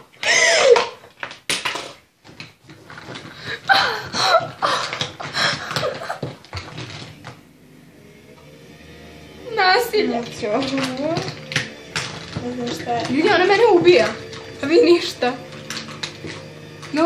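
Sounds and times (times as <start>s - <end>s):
girl laughing: 0.2s - 0.9s, 3.4s - 6.4s.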